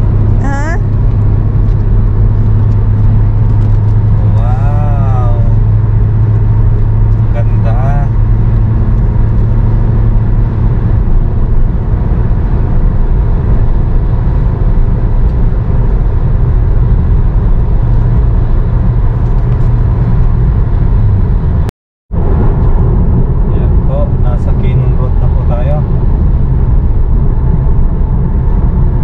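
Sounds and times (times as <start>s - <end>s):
car road and engine noise: 0.0s - 29.0s.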